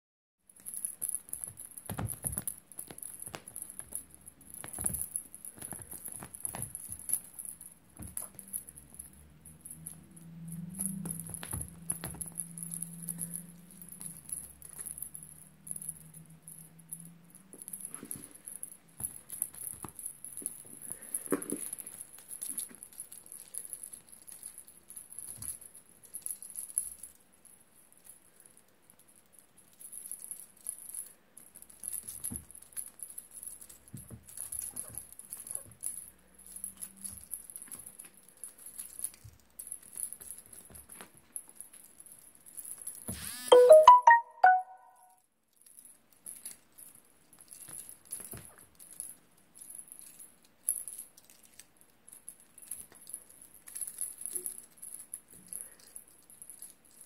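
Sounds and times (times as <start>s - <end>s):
rattly taps of a toy: 0.7s - 7.3s.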